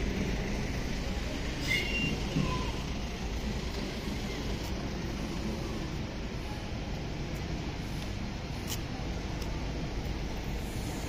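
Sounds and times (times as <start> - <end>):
distant traffic rumble: 0.0 - 11.0
high-pitched squeal: 1.5 - 3.0.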